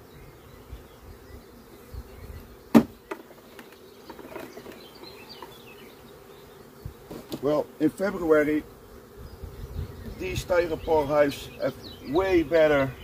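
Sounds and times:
bees buzzing: 0.0s - 13.0s
sharp knock: 2.7s - 3.0s.

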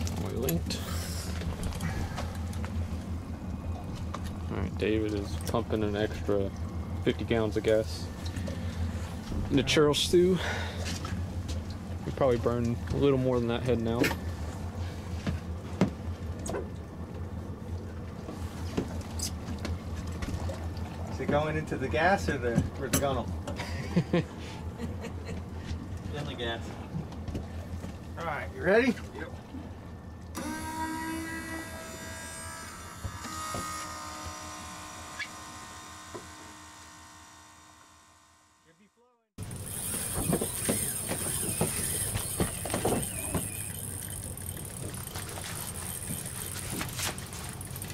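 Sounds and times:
low mechanical hum: 0.0s - 47.9s
high steady tones: 30.4s - 39.0s.

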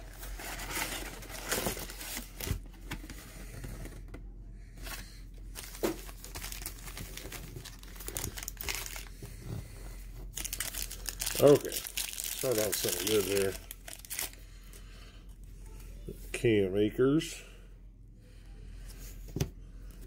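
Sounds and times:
wrapper crinkling: 5.5s - 9.2s, 10.3s - 14.4s.

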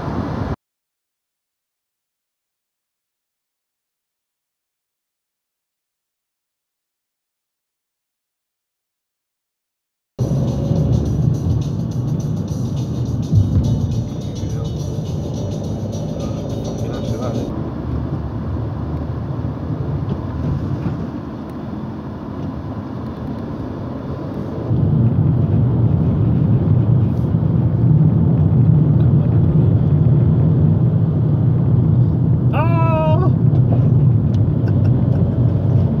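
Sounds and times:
car road and engine noise: 0.0s - 0.6s, 10.2s - 36.0s.

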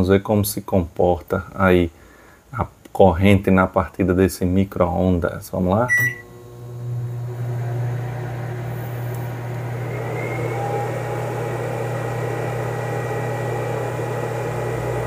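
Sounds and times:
microwave oven humming: 5.9s - 15.0s
fan-like whirring: 6.2s - 15.0s.

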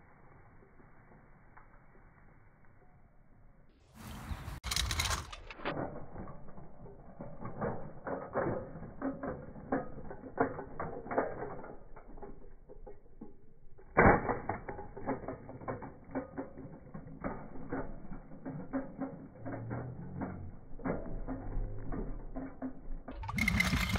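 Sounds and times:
scooter wheels rattling on asphalt: 3.9s - 23.9s.

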